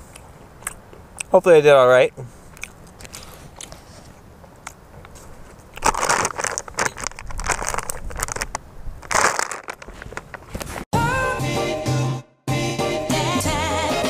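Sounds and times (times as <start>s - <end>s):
plastic bag crinkling: 5.2s - 10.9s.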